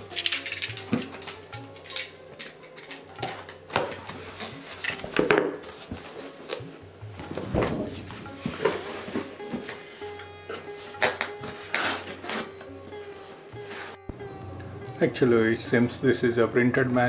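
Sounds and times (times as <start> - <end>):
cardboard flaps scraping and rustling: 7.2 - 10.2.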